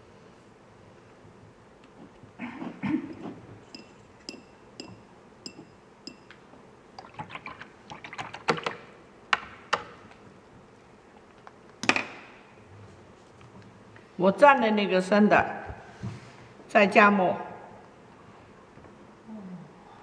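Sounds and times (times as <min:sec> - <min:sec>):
water sloshing: 0:07.0 - 0:08.8.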